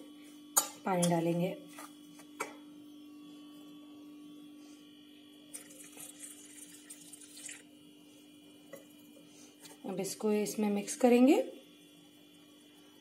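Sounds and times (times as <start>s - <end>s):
water pouring into bowl: 5.5s - 7.7s.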